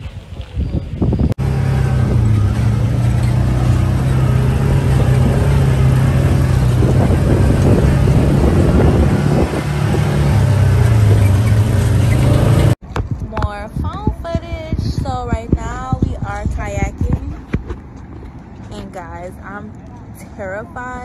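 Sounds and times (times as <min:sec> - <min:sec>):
off-road vehicle engine droning: 0:01.4 - 0:12.8.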